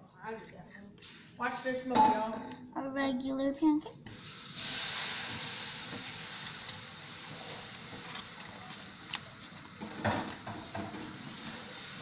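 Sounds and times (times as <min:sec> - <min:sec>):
batter sizzling in a frying pan: 0:04.1 - 0:12.0.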